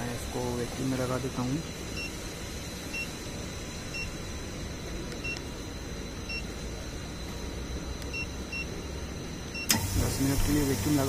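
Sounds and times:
steady low hum: 0.0s - 11.0s
keypad beeps: 8.1s - 8.7s.

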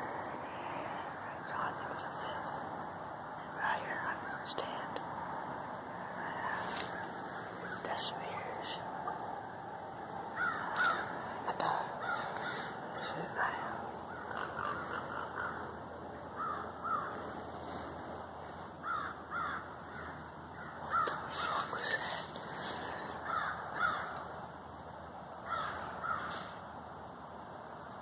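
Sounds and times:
hoarse animal calls: 14.0s - 17.9s.

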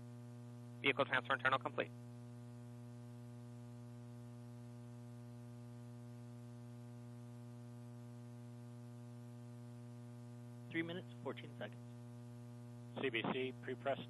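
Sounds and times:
electrical mains hum: 0.0s - 14.0s
faint hiss: 12.9s - 14.0s.

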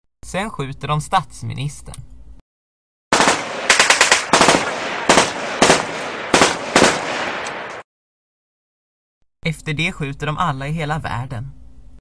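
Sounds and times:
machine-gun fire: 3.1s - 7.8s.

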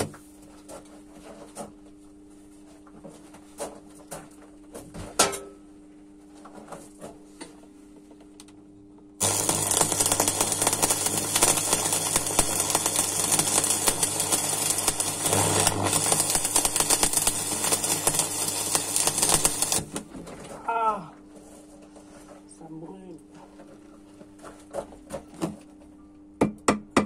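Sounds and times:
steady low hum: 0.0s - 26.4s
welding arc crackling sizzle: 9.2s - 20.1s.

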